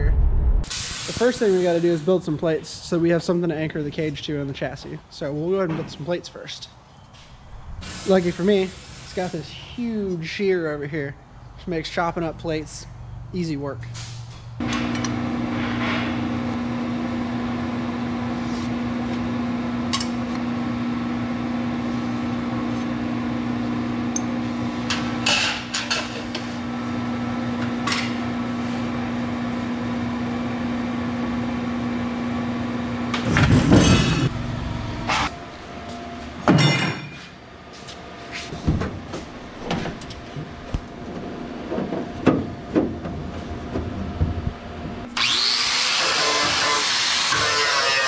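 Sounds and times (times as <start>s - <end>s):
shear motor hum: 45.1s - 46.6s.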